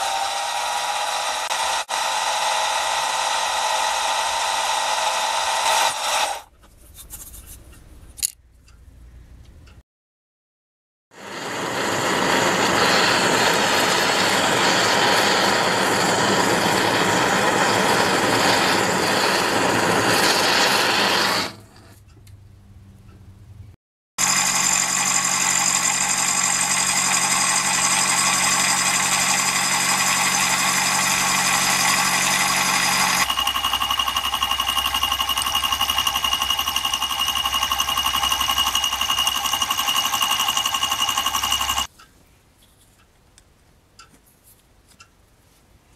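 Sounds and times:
milling machine whining: 0:00.0 - 0:06.4, 0:11.2 - 0:21.5, 0:24.2 - 0:41.9.

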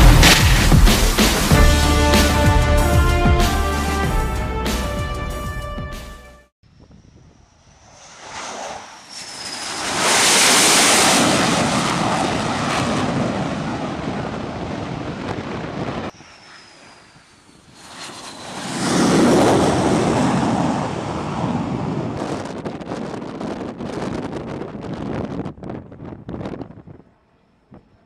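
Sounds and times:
jet engines roaring past: 0:06.7 - 0:24.4
wind buffeting microphone: 0:10.9 - 0:16.2, 0:17.2 - 0:28.0.

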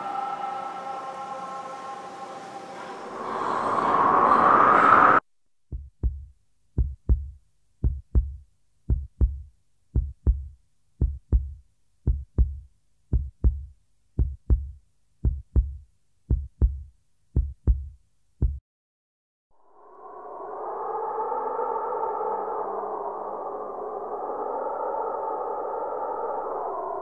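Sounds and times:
heartbeat thumps: 0:05.7 - 0:18.6.

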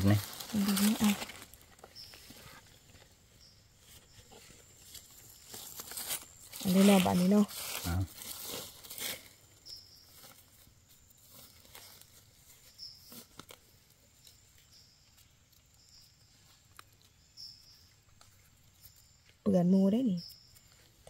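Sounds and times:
fingers digging in leaf litter: 0:00.0 - 0:02.5, 0:04.6 - 0:09.5
small clicks and crackles: 0:11.0 - 0:19.4.

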